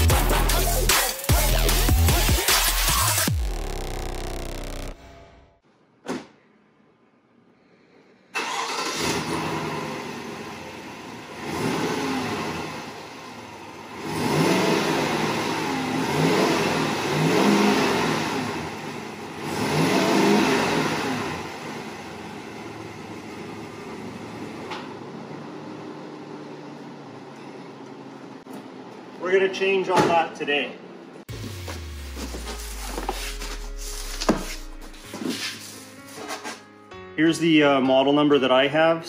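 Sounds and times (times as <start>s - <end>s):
truck engine revving and idling: 0.0s - 5.2s, 9.1s - 27.3s.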